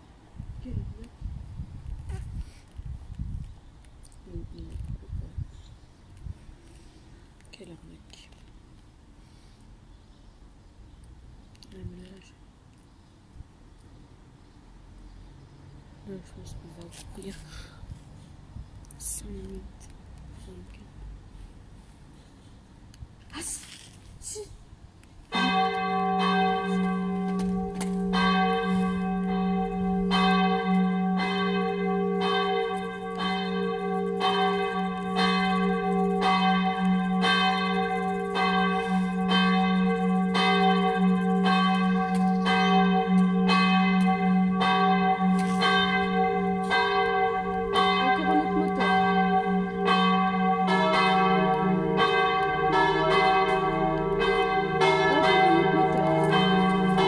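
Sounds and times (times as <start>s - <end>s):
church bell ringing: 25.3s - 57.0s
lower-pitched church bell: 25.3s - 57.0s.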